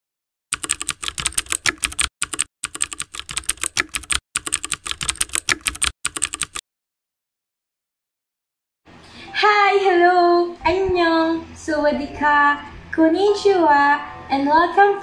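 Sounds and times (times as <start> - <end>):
keyboard typing: 0.5 - 6.6.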